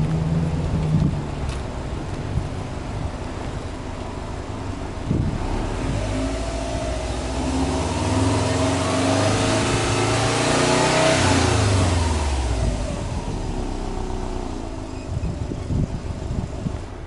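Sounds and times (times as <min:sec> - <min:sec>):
car engine revving: 0:05.0 - 0:16.8.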